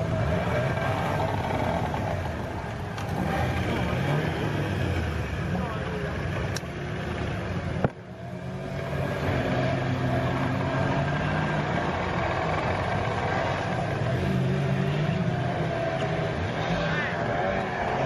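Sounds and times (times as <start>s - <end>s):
outboard motor droning: 8.4s - 18.0s.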